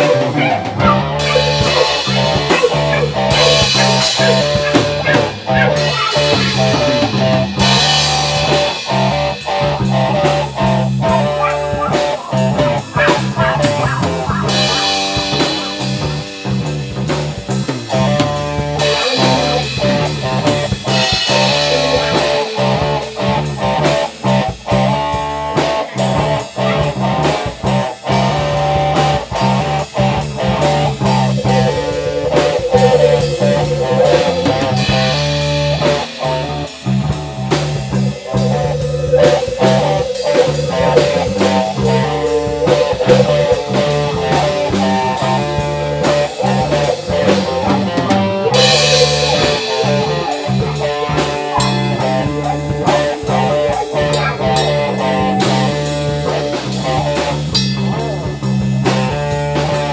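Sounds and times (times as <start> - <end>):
lead guitar vibrato notes: 0.0 - 9.5, 18.8 - 24.3, 30.1 - 57.0
instrumental rock jam: 0.0 - 59.9.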